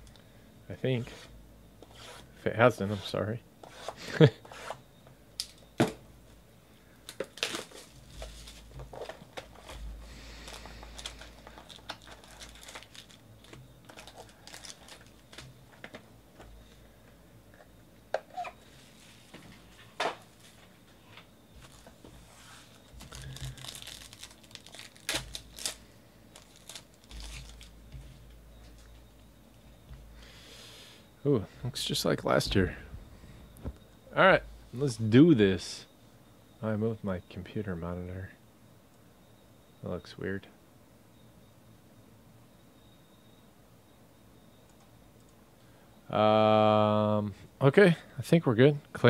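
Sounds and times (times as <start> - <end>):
plastic wrap tearing and crumpling: 10.5 - 15.5, 23.0 - 27.7.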